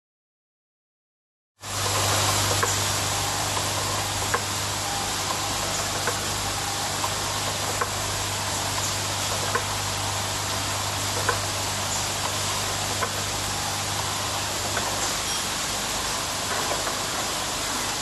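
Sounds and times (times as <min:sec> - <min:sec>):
machine motor hum and hiss: 0:01.6 - 0:18.0.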